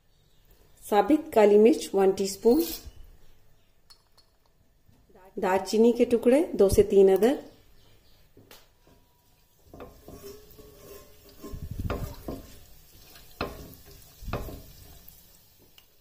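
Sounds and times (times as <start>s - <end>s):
spatula scraping a metal pan: 2.4s - 3.0s, 9.6s - 15.1s
oil sizzling faintly: 8.9s - 16.0s.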